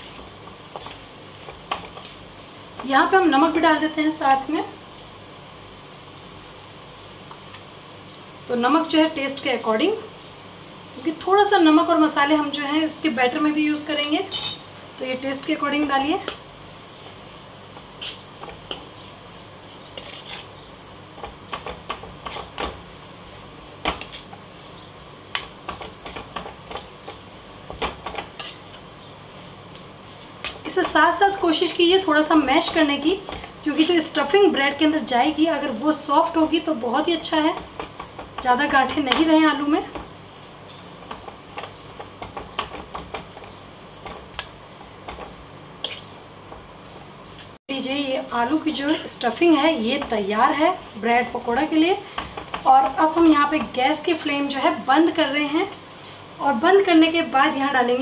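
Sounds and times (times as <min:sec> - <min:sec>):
spoon scraping a pan: 0:17.8 - 0:18.9, 0:19.9 - 0:22.7, 0:23.8 - 0:24.4, 0:25.4 - 0:28.9, 0:41.1 - 0:46.7, 0:48.6 - 0:49.2
metal spoon scraping a pan: 0:18.0 - 0:18.9, 0:19.9 - 0:20.6, 0:21.2 - 0:22.6, 0:23.8 - 0:24.4, 0:27.8 - 0:28.8, 0:45.1 - 0:46.2, 0:48.7 - 0:49.2.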